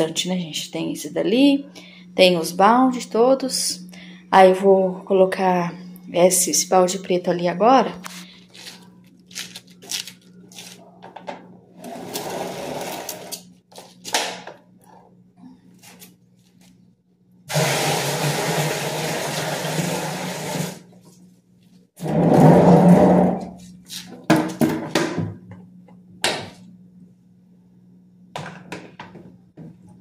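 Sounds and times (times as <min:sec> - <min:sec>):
faint steady hum: 0:00.0 - 0:17.5, 0:25.2 - 0:30.0.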